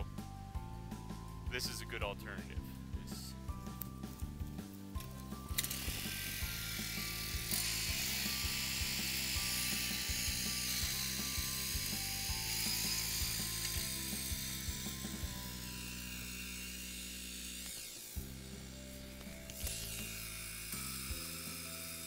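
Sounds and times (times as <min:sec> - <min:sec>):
music with steady beat: 0:00.0 - 0:17.0.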